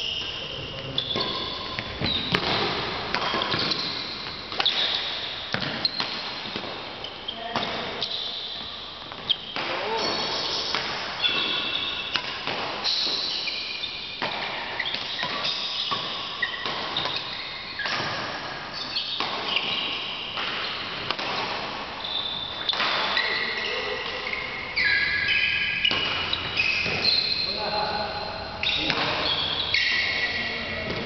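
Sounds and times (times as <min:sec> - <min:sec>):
shoes squeaking on court floor: 0:00.0 - 0:31.0
racket striking shuttlecock: 0:01.1 - 0:06.8, 0:10.6 - 0:27.3.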